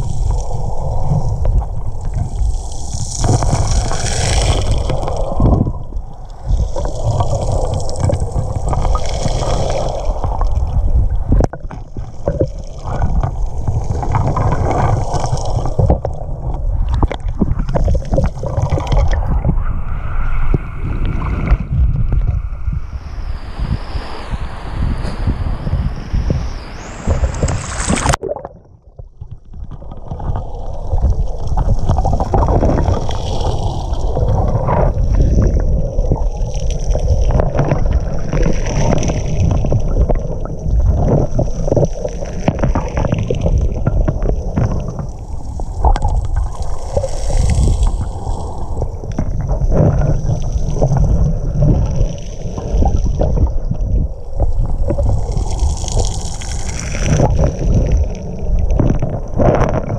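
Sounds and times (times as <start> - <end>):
small underwater clicks and knocks: 0.0 - 19.6, 27.0 - 59.9
muffled underwater rumble: 0.0 - 59.9
water splash: 20.1 - 53.5, 54.3 - 59.9.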